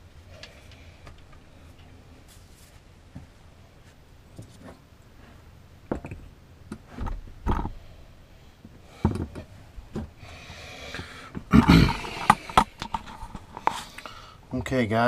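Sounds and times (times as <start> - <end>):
rough rustle: 2.2 - 2.9
plastic hoses knocking and rubbing: 11.3 - 13.9.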